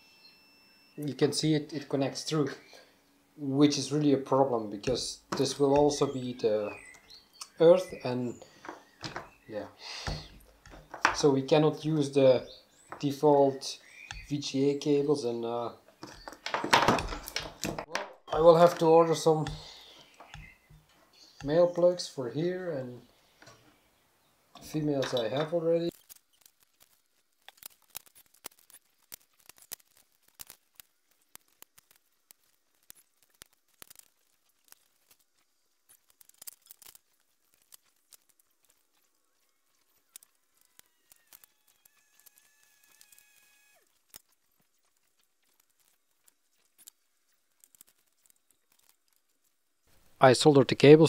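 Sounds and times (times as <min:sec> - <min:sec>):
faint thin high tones: 0:00.0 - 0:01.4.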